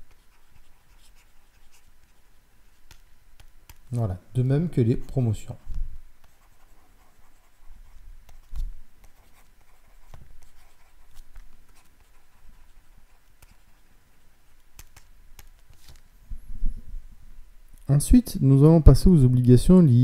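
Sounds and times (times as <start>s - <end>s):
stylus scratching on tablet: 0.0s - 4.0s, 5.3s - 16.0s.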